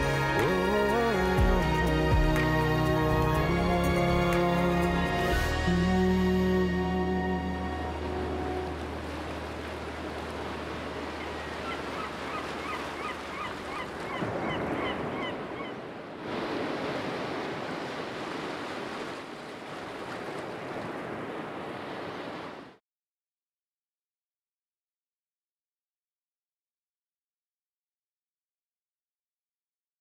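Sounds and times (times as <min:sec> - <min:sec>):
high repeated bird calls: 0:11.2 - 0:15.8.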